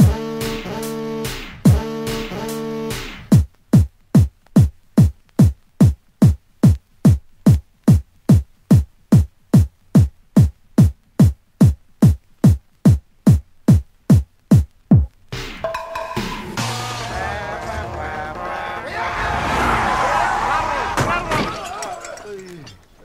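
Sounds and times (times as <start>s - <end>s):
techno kick drum beat: 0.0s - 17.0s.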